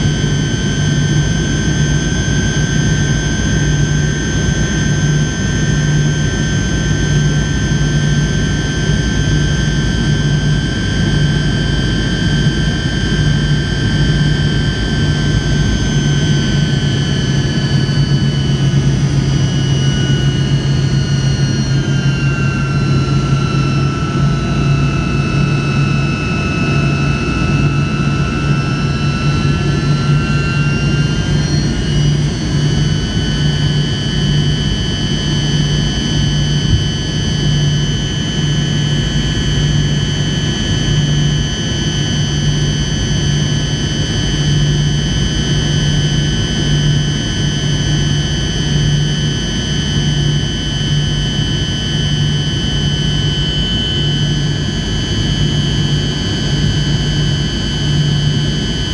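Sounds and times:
jet engines in aircraft cabin: 0.0s - 58.9s
pulsing low hum: 0.0s - 58.9s
high whining tones: 17.6s - 34.1s.

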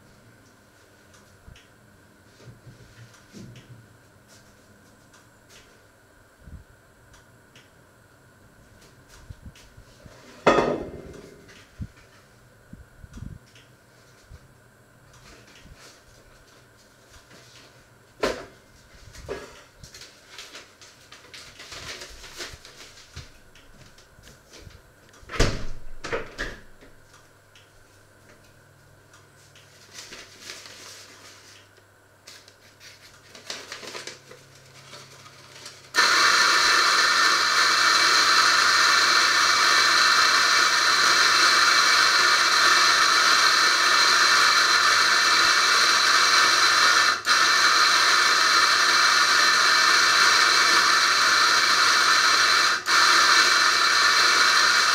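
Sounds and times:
loud steady hiss: 35.6s - 54.9s.

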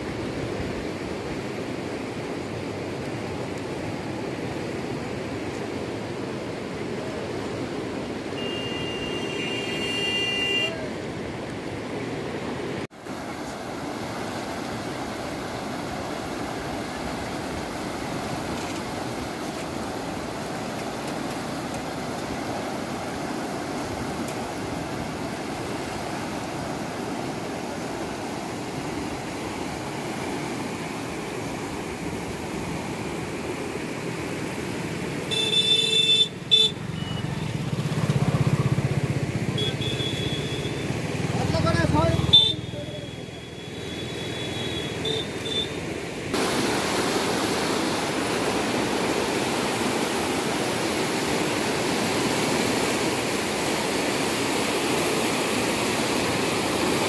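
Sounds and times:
floodwater rushing: 0.0s - 57.0s
vehicle horn honking: 8.4s - 10.9s, 35.3s - 37.3s, 39.6s - 40.9s, 42.2s - 45.8s.

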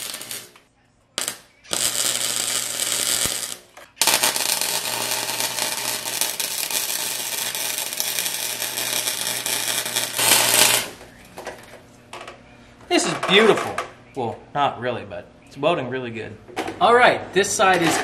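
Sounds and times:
welder arc crackling: 0.0s - 0.6s, 1.2s - 11.6s.

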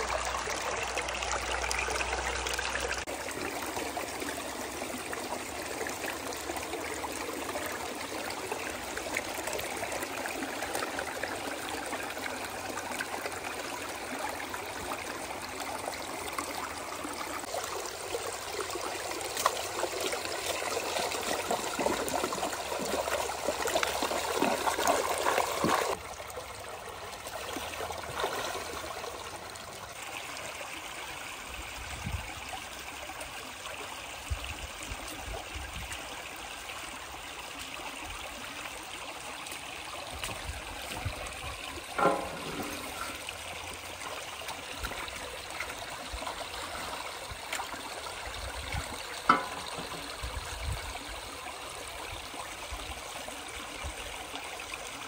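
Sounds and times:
water trickling and splashing: 0.0s - 55.0s.

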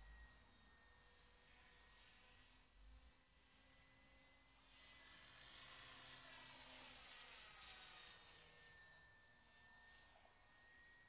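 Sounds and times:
rc helicopter high-pitched whine: 0.0s - 11.0s.

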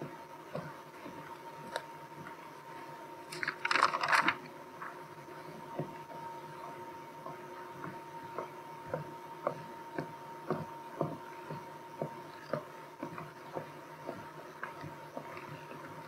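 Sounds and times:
faint high hum: 0.0s - 16.0s.

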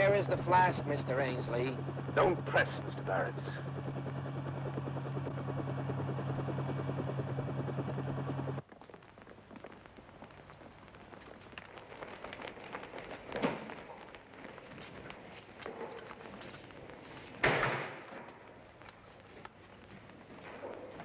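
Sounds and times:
helicopter rotor and engine: 0.0s - 8.6s, 11.6s - 21.0s
footsteps: 8.6s - 21.0s.

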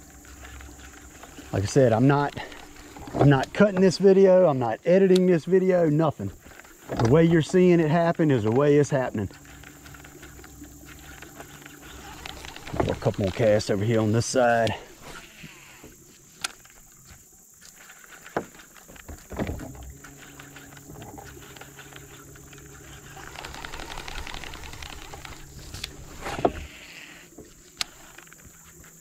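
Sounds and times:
electric motor humming: 0.0s - 5.1s, 6.2s - 29.0s
scattered clicks: 8.4s - 14.8s, 19.9s - 26.0s.

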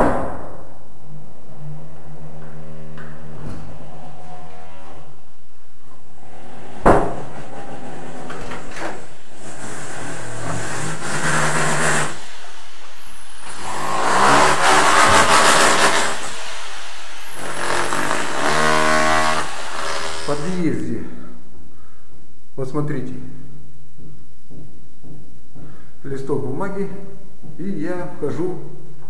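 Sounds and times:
rotary hammer drilling through walls: 6.2s - 12.5s, 13.3s - 20.5s.

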